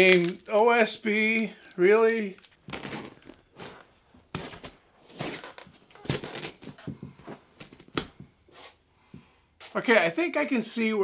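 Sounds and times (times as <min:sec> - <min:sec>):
upholstery rustling and tearing: 0:02.1 - 0:08.8.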